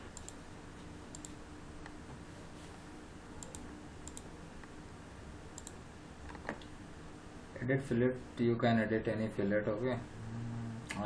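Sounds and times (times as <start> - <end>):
faint steady hum: 0.0 - 11.0
computer mouse clicking: 0.1 - 0.4, 1.1 - 2.0, 3.4 - 4.3, 5.6 - 6.7.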